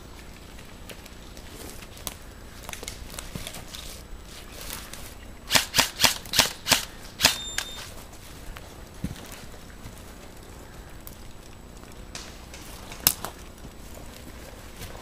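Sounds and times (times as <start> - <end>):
airsoft rifle shots: 5.5 - 7.9.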